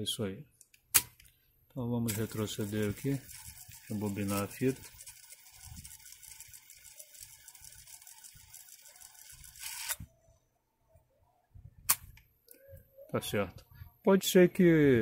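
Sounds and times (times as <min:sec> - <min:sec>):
sharp click: 0:00.6 - 0:01.3, 0:11.9 - 0:12.3
cassette rewinding whirr: 0:02.1 - 0:10.0.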